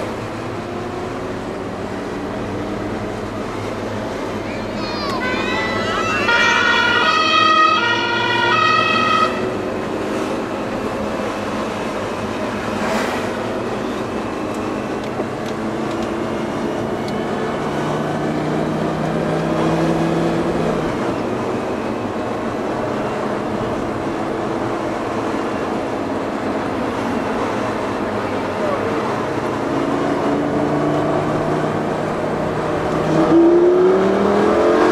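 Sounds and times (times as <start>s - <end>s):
car engine at low speed: 0.0s - 34.9s
tyre and road noise: 0.0s - 34.9s
two-tone siren: 5.2s - 9.6s.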